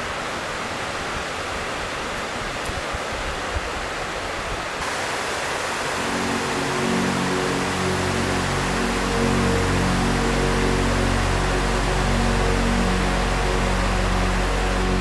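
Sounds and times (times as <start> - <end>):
music: 5.7 - 15.0.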